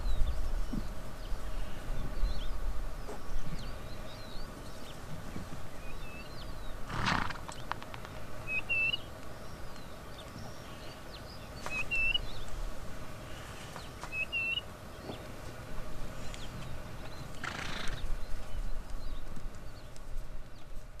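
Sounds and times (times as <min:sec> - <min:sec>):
bird rising chirp: 0:00.0 - 0:12.5, 0:13.7 - 0:15.4.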